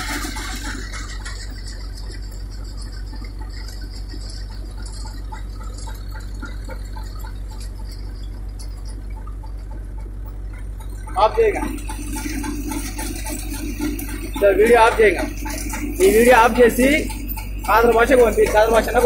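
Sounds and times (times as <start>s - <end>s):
engine hum: 0.0s - 19.0s
threshing drum churning: 0.0s - 19.0s.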